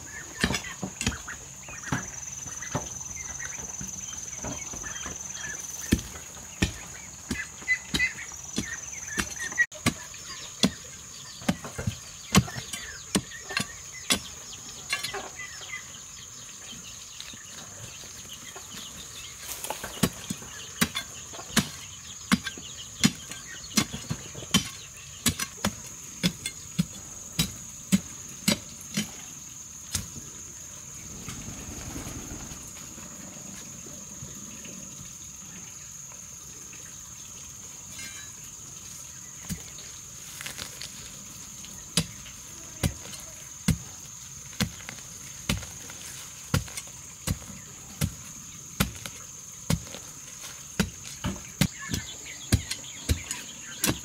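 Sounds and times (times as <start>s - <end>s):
hoe chopping stony soil: 0.1s - 3.3s, 4.4s - 15.5s, 18.7s - 30.3s, 31.0s - 32.8s, 41.9s - 54.0s.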